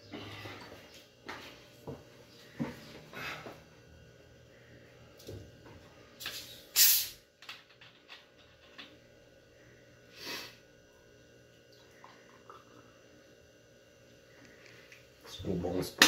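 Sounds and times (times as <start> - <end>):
carbonated gas hissing: 6.3 - 7.2, 10.1 - 10.6.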